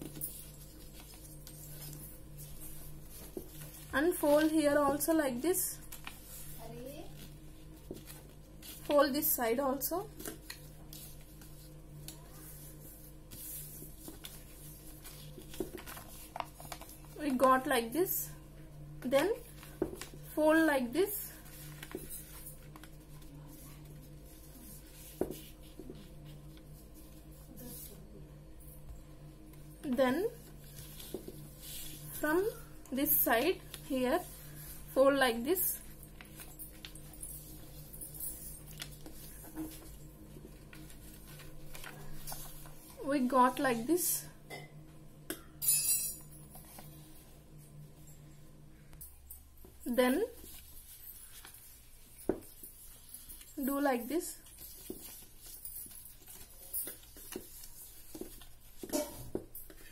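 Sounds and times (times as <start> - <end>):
paper rustling on a table: 0.0 - 17.5, 19.2 - 20.3, 21.3 - 28.0, 30.4 - 32.6, 35.7 - 43.6, 50.3 - 59.9
low steady hum: 0.0 - 59.9.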